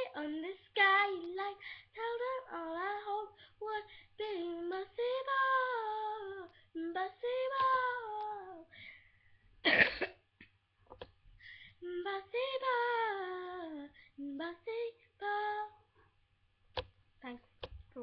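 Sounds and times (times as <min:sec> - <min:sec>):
girl singing: 0:00.0 - 0:09.0, 0:11.5 - 0:15.9
loud cough: 0:09.6 - 0:10.2.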